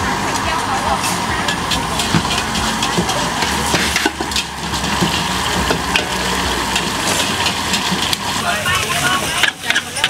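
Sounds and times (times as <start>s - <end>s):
food frying: 0.0s - 10.0s
gas burners rushing: 0.0s - 10.0s
metal utensil scraping in wok: 0.3s - 10.0s.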